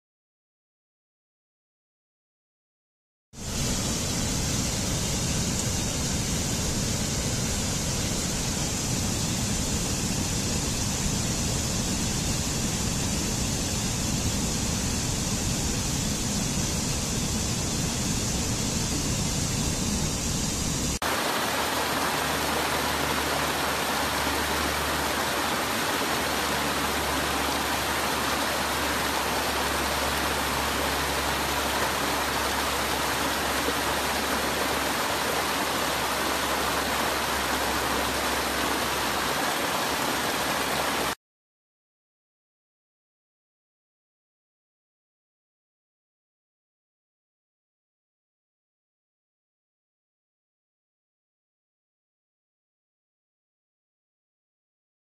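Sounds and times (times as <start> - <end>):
stream water rushing over rocks: 21.0 - 41.2.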